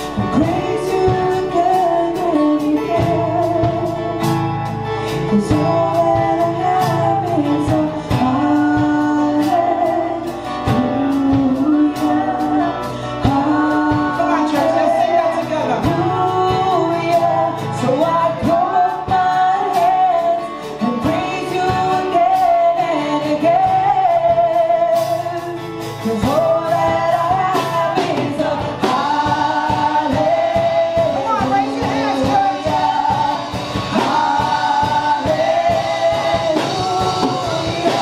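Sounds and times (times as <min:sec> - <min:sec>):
band playing a praise song: 0:00.0 - 0:38.0
several voices singing: 0:00.0 - 0:38.0
steady percussive beat: 0:26.2 - 0:38.0.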